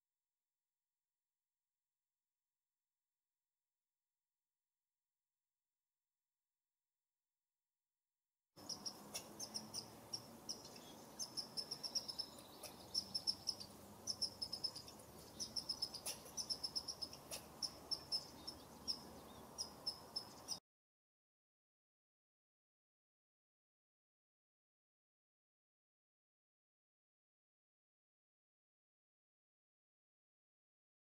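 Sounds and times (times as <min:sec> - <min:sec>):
bird twittering trills: 0:08.6 - 0:20.6.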